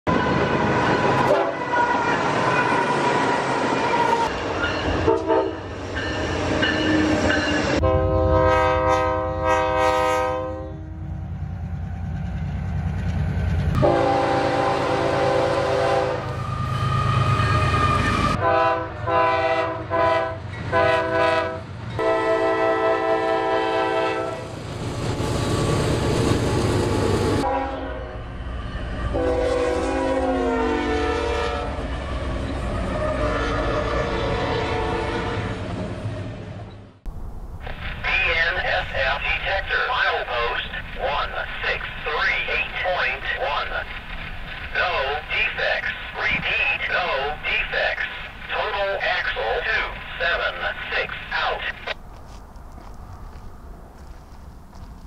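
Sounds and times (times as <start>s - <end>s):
train air horn blasts: 0.1s - 4.3s, 5.0s - 5.7s, 7.8s - 11.0s, 13.8s - 24.5s, 27.4s - 28.2s, 29.1s - 31.8s, 32.9s - 35.6s
train rumble and wheel clatter: 0.1s - 55.0s.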